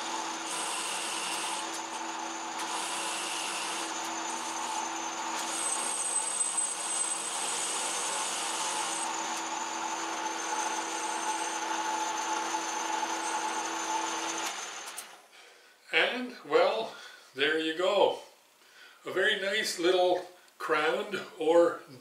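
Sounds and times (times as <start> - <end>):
metal lathe humming: 0.0 - 15.1
cutting tool hiss and whine: 0.0 - 15.2.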